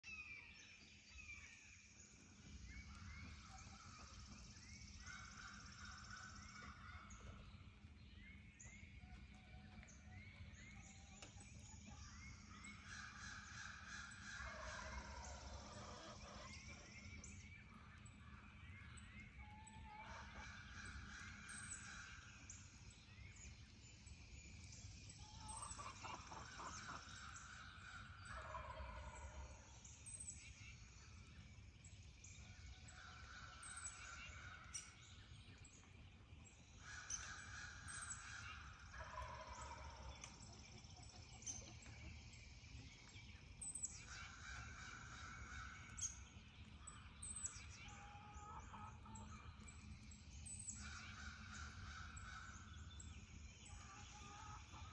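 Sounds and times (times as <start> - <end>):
faint turkeys gobbling: 10.7 - 18.5, 19.3 - 22.3, 25.3 - 29.8, 36.6 - 43.2, 47.5 - 49.5.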